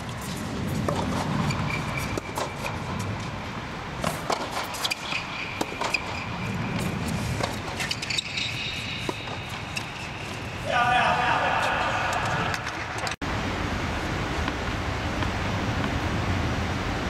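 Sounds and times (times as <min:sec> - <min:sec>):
tennis ball hits and bounces: 0:00.3 - 0:03.4, 0:04.0 - 0:10.5.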